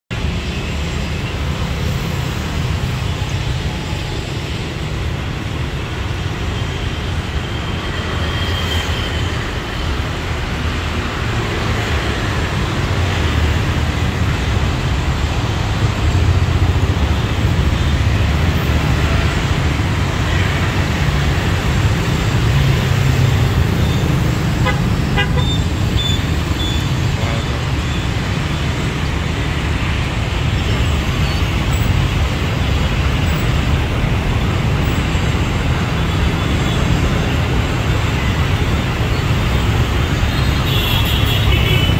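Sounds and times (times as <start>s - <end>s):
street traffic rumble: 0.1s - 41.9s
vehicle horn toots: 24.6s - 26.8s.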